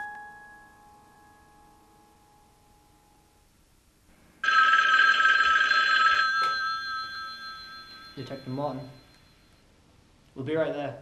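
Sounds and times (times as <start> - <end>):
telephone ringing: 4.4 - 9.7
chime-like music: 6.4 - 9.5.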